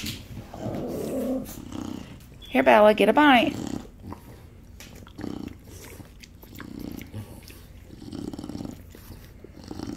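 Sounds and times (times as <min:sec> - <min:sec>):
pig grunting: 0:03.3 - 0:04.3, 0:05.0 - 0:09.9
pig smacking and chewing: 0:03.6 - 0:09.9.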